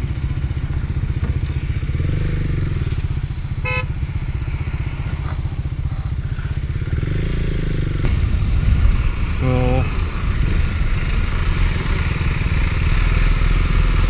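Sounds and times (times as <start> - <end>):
motorcycle engine idling: 0.0 - 12.9
other motorcycles running: 0.0 - 14.0
horn beep: 3.6 - 3.9.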